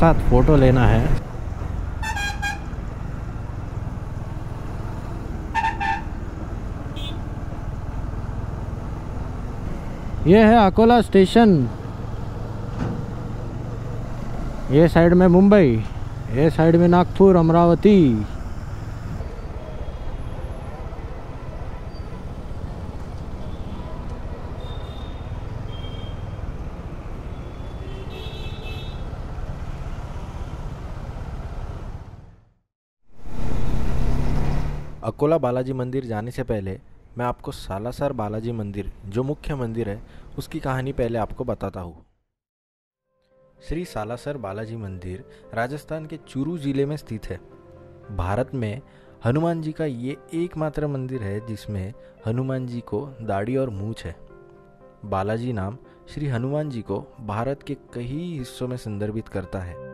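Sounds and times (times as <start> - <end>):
motorcycle engine and road noise: 0.0 - 35.1
motorcycle engine rumble: 15.3 - 32.5
vehicle horn short beeps: 24.6 - 26.4, 27.3 - 29.0.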